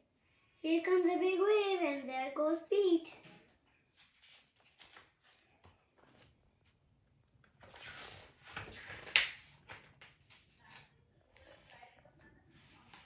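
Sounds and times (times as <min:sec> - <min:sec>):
paper pages rustling: 0:03.8 - 0:06.8, 0:07.5 - 0:11.8, 0:12.5 - 0:13.0
sharp paper click: 0:08.6 - 0:10.2.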